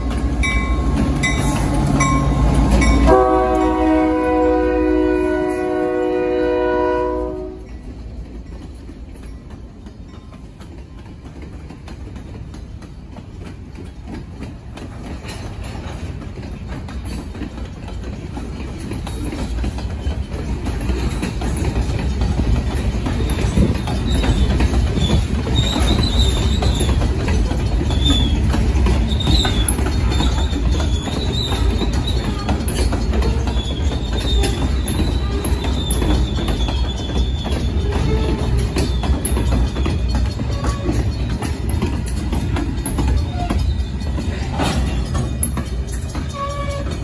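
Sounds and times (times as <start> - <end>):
freight train wheels rumbling: 0.0 - 47.0
locomotive horn blast: 3.0 - 7.7
high-pitched wheel squeals: 23.3 - 41.5.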